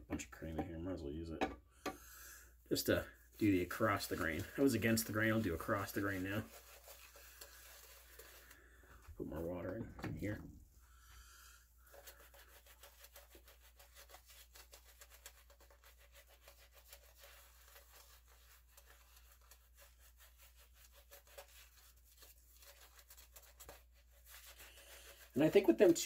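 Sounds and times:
shaving brush rubbing on scalp: 2.8s - 8.8s, 11.8s - 26.0s.

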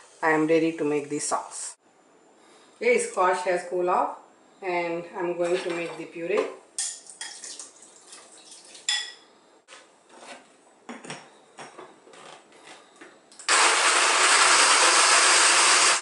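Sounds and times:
metal spoon clinking glass bowl: 8.6s - 9.2s
blender running: 13.4s - 16.0s.

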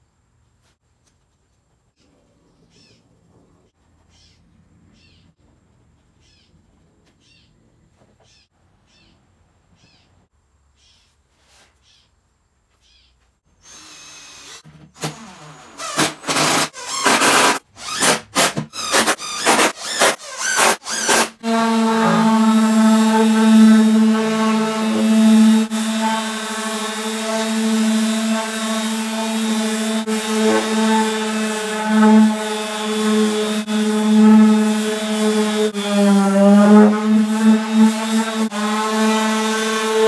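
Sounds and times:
power tool short runs: 13.7s - 40.0s
orbital sander sanding wood: 18.9s - 40.0s.

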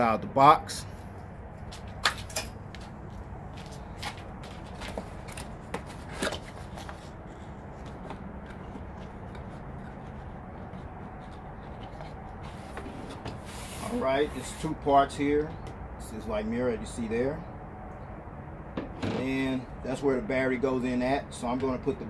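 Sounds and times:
cardboard rubbing and rustling: 4.6s - 14.7s.

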